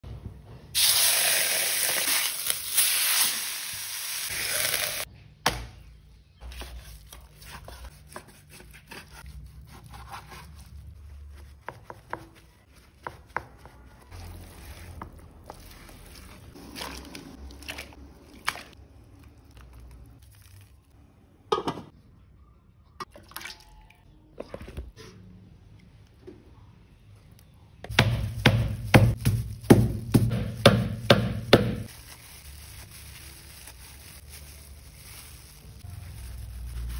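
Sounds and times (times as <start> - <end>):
oil sizzling loudly in a wok: 0.8 - 5.1.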